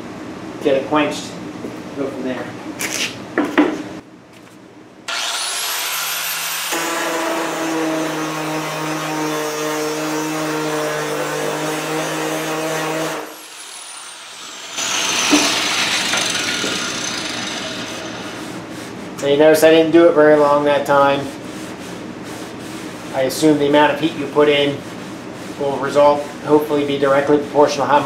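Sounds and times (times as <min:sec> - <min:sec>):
angle grinder humming: 0:05.1 - 0:18.7.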